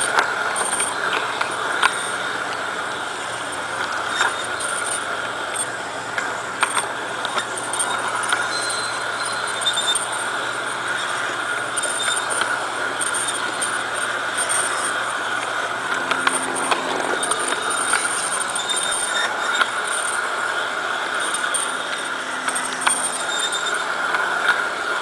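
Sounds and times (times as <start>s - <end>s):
electric motor whine: 0.0s - 25.0s
faint wheel squeal: 0.0s - 25.0s
wheels clicking over rail joints: 0.0s - 25.0s.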